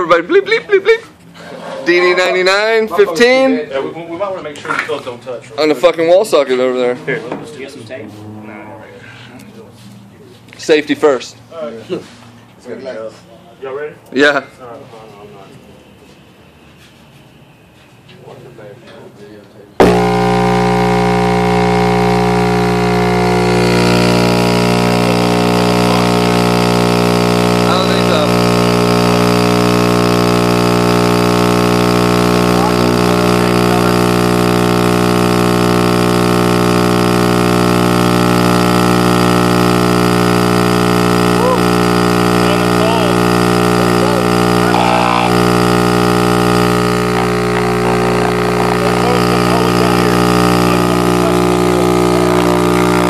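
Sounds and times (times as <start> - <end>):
subwoofer buzzing hum: 19.8 - 53.0.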